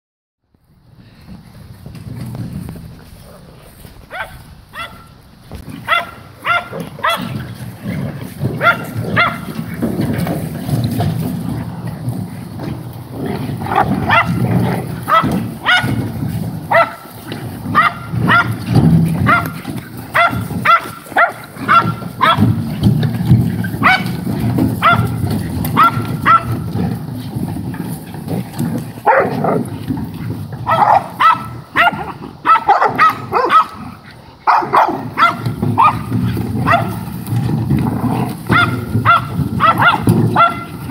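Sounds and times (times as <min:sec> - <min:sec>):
dogs barking: 0:04.1 - 0:10.3, 0:13.6 - 0:22.9, 0:23.5 - 0:27.0, 0:28.7 - 0:29.8, 0:30.6 - 0:40.9.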